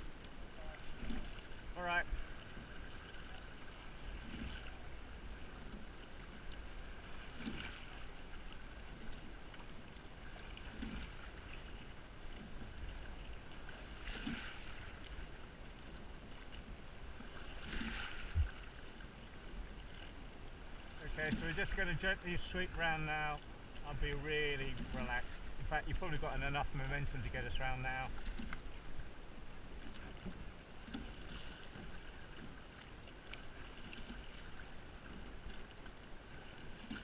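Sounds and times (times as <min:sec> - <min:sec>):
oars splashing and knocking: 0:00.3 - 0:37.0
wind rumble on microphone: 0:18.2 - 0:18.6.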